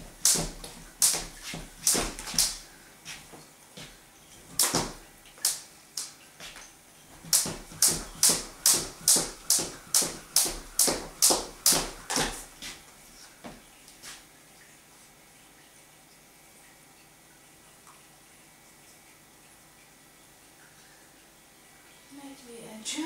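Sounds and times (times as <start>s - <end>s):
skipping rope slapping floor: 0.0s - 2.6s, 4.5s - 6.1s, 7.2s - 12.8s.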